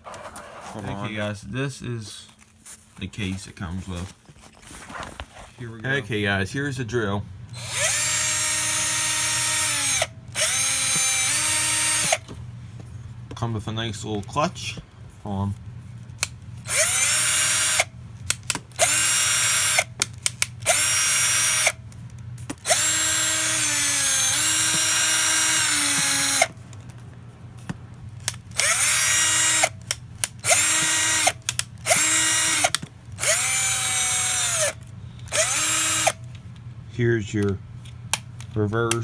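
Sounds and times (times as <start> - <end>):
cordless drill motor whine: 7.5 - 12.3, 16.6 - 17.9, 18.8 - 19.9, 20.6 - 21.8, 22.6 - 26.6, 28.6 - 29.8, 30.4 - 36.2.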